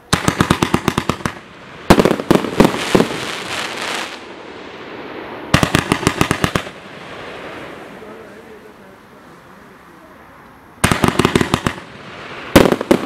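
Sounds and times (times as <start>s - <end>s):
firework bangs: 0.0s - 8.9s, 10.8s - 13.0s
crackling hiss: 0.0s - 13.0s
rapid firework shots: 0.1s - 4.2s, 5.5s - 7.7s, 10.8s - 13.0s.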